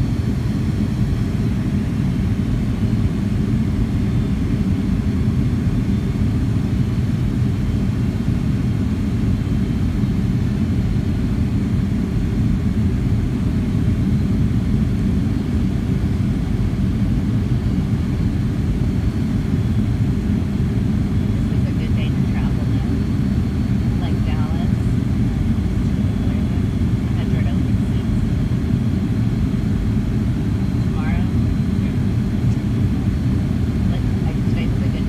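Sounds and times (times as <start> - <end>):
jet engine cabin rumble: 0.0 - 35.0.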